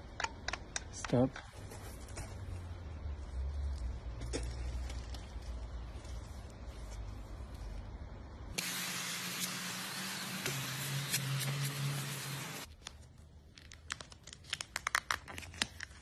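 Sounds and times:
paint spraying hiss: 8.6 - 12.7.

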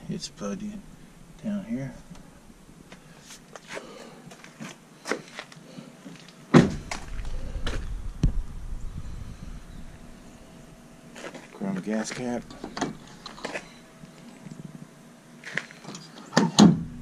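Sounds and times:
loud thunk: 6.5 - 6.9
wind on microphone: 6.8 - 10.5.

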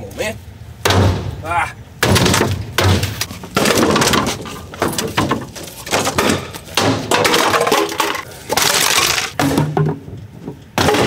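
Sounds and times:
sledgehammer hitting wood: 0.8 - 1.4, 2.0 - 8.0, 8.6 - 10.1, 10.7 - 11.0
wood cracking and splintering: 2.0 - 9.9.

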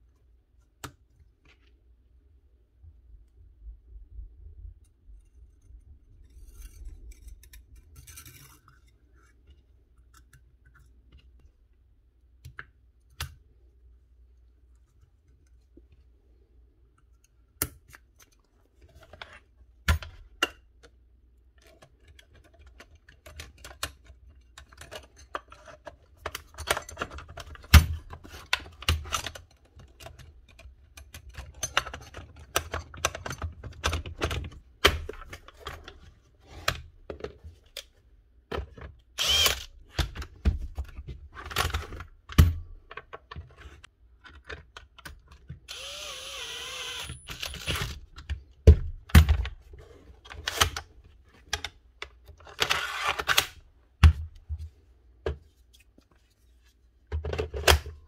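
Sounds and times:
plastic parts clicking and knocking: 16.9 - 55.4, 57.0 - 58.0.

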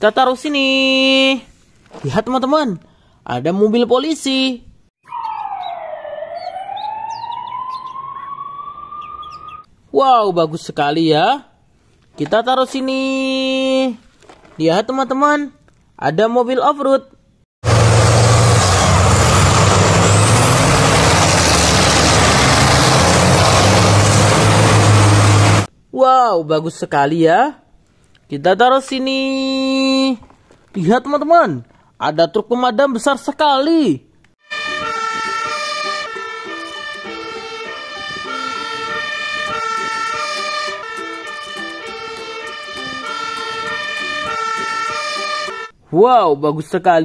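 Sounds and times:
truck engines running loud: 17.6 - 25.7, 34.6 - 45.7.

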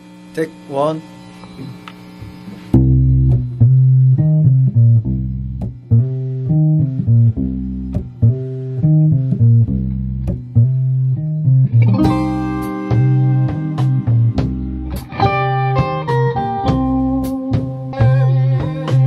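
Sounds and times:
electric bass guitar riff: 2.7 - 19.0.

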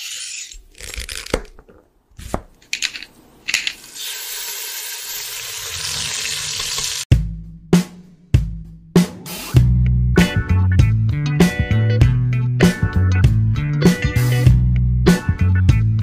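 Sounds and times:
drum music: 7.1 - 16.0.

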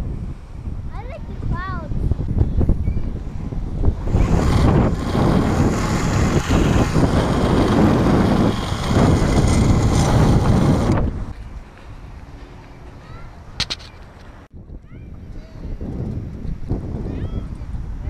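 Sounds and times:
wind buffeting microphone: 0.0 - 12.2, 14.4 - 18.0.

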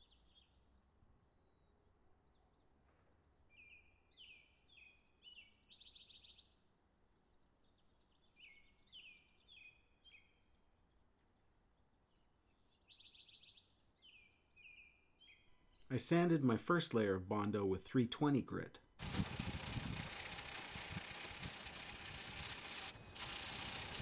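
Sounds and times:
songbird singing: 3.5 - 6.8, 7.4 - 10.8, 12.0 - 15.6.

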